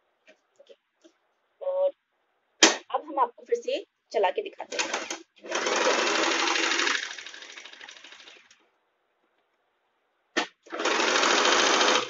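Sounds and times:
sewing machine stitching: 4.7s - 8.6s, 10.6s - 12.0s.

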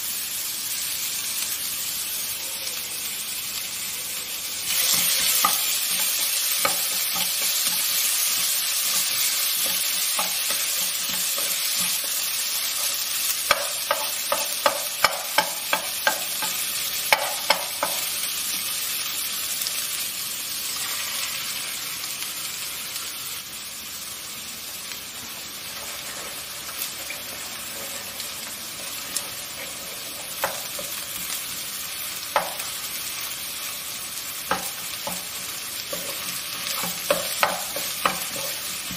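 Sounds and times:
vegetables sizzling in a pot: 0.0s - 38.9s
spatula scraping and tapping pan: 4.7s - 18.1s, 25.6s - 31.5s, 32.3s - 32.8s, 34.5s - 38.9s.

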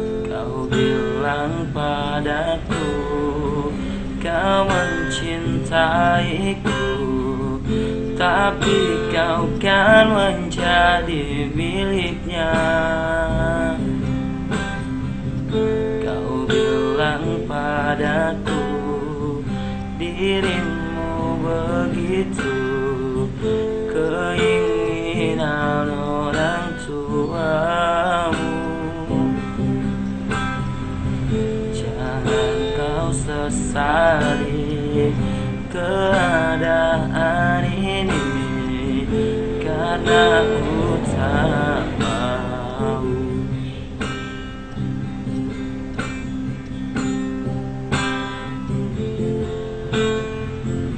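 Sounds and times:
man singing: 0.0s - 14.1s, 15.9s - 29.9s, 31.7s - 43.8s
strummed acoustic guitar: 0.0s - 50.9s.

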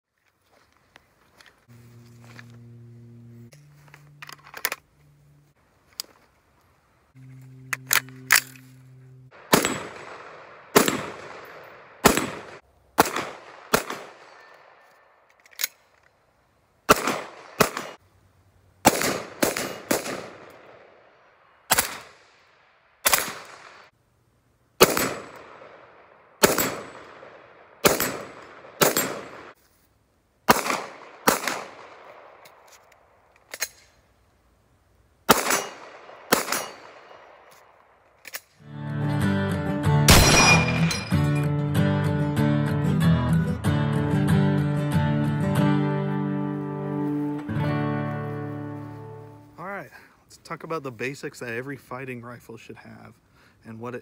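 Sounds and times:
low electronic tones: 1.7s - 5.6s, 7.1s - 9.5s
gunshots with echo: 9.3s - 14.9s, 16.9s - 18.0s, 18.9s - 21.1s, 24.8s - 29.6s, 30.5s - 32.4s, 35.3s - 37.5s, 40.1s - 40.9s.

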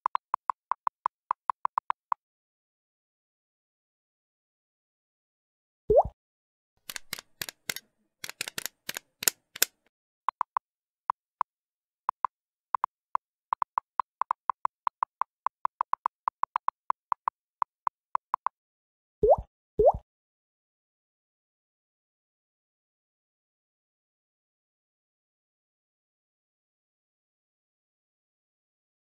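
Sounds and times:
rising plop blip: 5.9s - 6.2s, 19.2s - 20.0s
typewriter-style ticks: 6.8s - 9.7s
sharp clicks: 6.8s - 10.6s.

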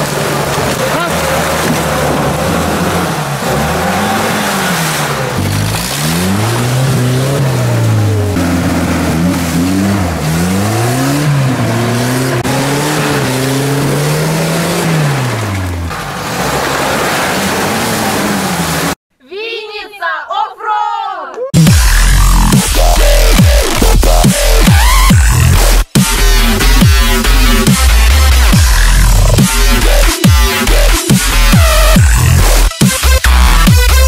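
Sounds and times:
engines revving hard: 0.0s - 19.0s, 21.6s - 34.0s
wheels spinning in mud: 0.0s - 19.0s.

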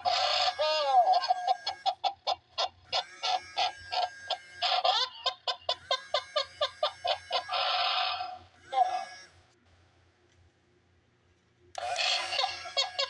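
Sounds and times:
toy giggling through speaker: 0.0s - 9.3s, 11.8s - 13.0s.

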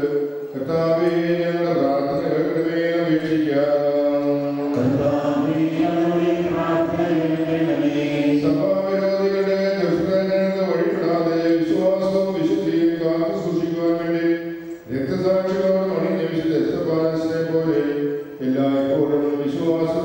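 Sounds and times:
voices singing slow chant: 1.0s - 13.5s.

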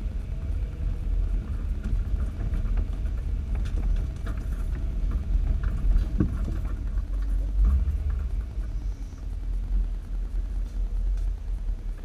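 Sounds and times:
vehicle engine low rumble: 0.0s - 12.0s
knocks and rattles: 1.2s - 12.0s.

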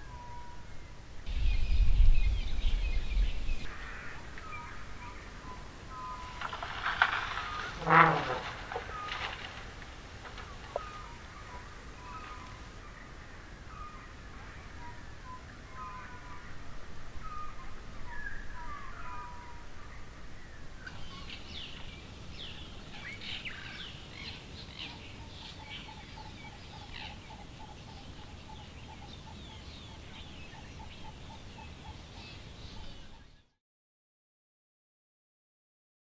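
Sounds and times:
low steady rumble: 0.9s - 15.3s
birds chirping: 1.3s - 14.2s, 20.9s - 33.5s.

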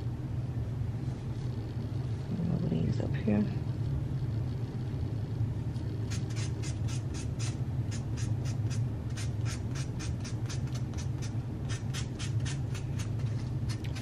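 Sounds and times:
steady low hum: 0.0s - 14.0s
nail buffer scratching fingernails: 6.1s - 14.0s.

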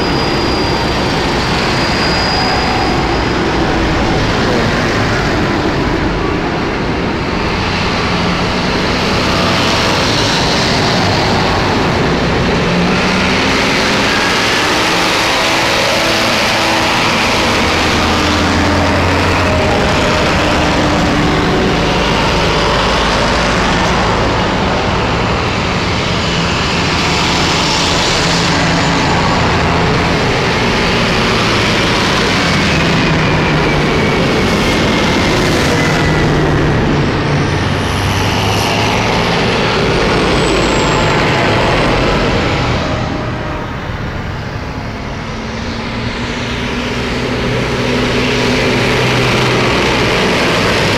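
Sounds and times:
thin high whistle: 0.0s - 4.2s
tractor diesel engines passing: 0.0s - 50.9s.

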